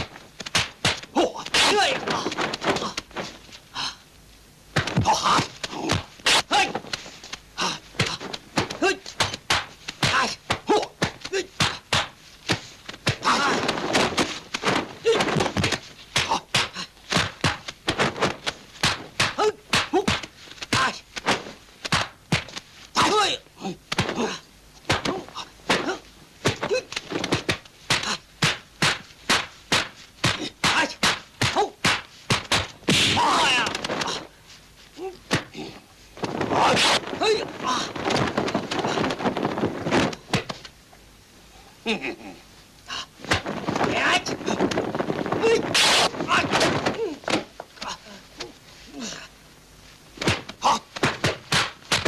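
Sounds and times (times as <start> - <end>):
fighters shouting and grunting: 1.2 - 3.0, 5.0 - 6.8, 7.6 - 9.4, 10.0 - 11.9, 13.1 - 13.9, 19.3 - 21.0, 23.0 - 27.0, 30.3 - 31.8, 33.0 - 34.3, 36.4 - 39.1, 43.9 - 44.6, 45.4 - 47.2
fighters grunting: 5.0 - 6.8, 7.6 - 9.2, 13.2 - 13.9, 33.0 - 34.4, 36.4 - 39.2
punch and kick impacts: 23.9 - 34.2, 50.2 - 52.0.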